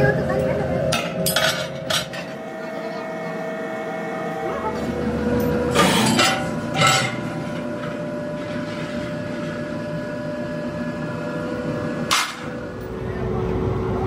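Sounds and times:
metallic clanks and scrapes: 0.9 - 2.4, 5.7 - 9.1.

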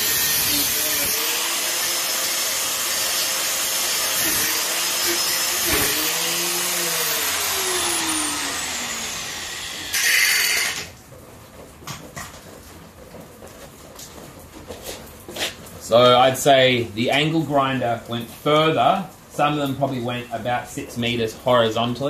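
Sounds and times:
angle grinder cutting metal: 0.0 - 10.9.

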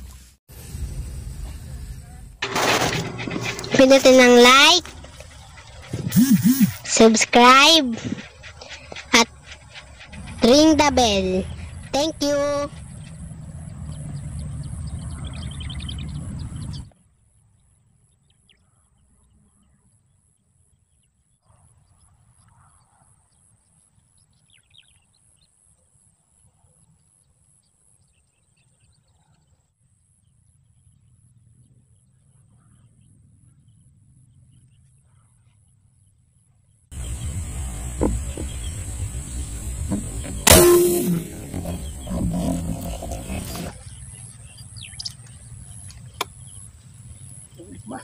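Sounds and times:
low rumbling noise: 0.5 - 16.9, 37.0 - 47.6.

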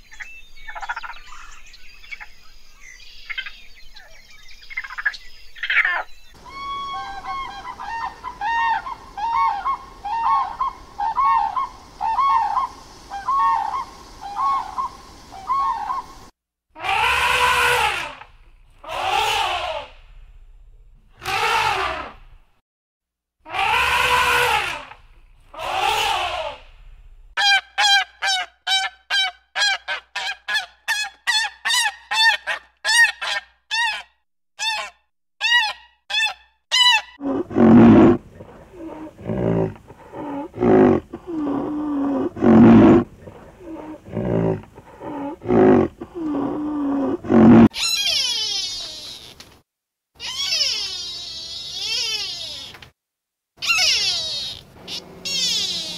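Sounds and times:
drawn-out rising and falling animal calls: 5.6 - 20.0, 21.2 - 22.4, 23.5 - 26.8, 34.6 - 49.4, 50.2 - 52.8, 53.6 - 55.9
deeper animal calls: 5.7 - 16.2, 16.8 - 20.2, 21.1 - 22.4, 23.5 - 30.3, 34.6 - 49.4, 50.2 - 52.8, 53.6 - 55.9
short high animal calls: 16.8 - 18.2, 23.5 - 26.6, 47.7 - 49.4, 50.2 - 52.8, 53.6 - 55.9.

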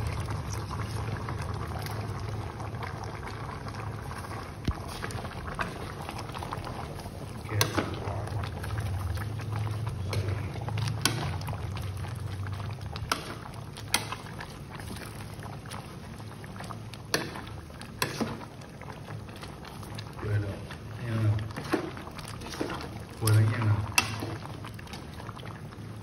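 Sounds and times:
low steady rumble: 0.0 - 17.0
liquid sloshing in a pot: 0.0 - 26.0.

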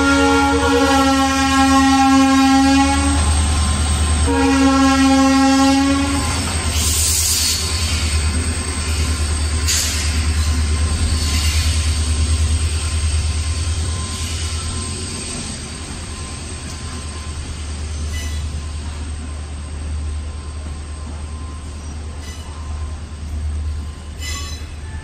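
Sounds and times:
train wheels rumbling on track: 0.0 - 25.0
rhythmic train wheel clatter: 6.0 - 25.0.

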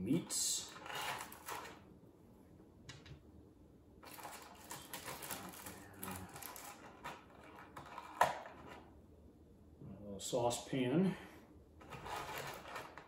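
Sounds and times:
plastic blister packaging crinkling: 4.0 - 8.7.

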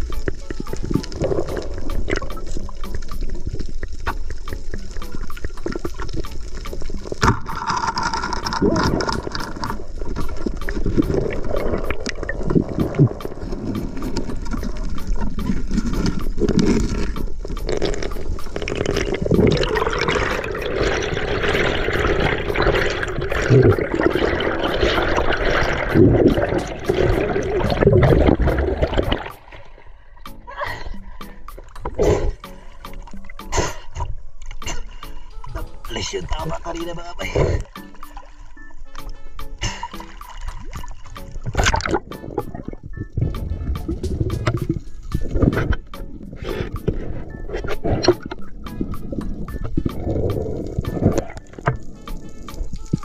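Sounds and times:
water rushing and bubbling: 0.0 - 53.0.

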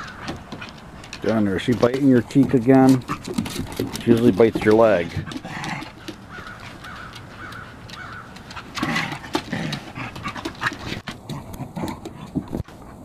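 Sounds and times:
dogs panting: 0.0 - 13.0
paws scuffling on boards: 0.0 - 13.0
dogs low vocal sounds: 2.0 - 7.0.

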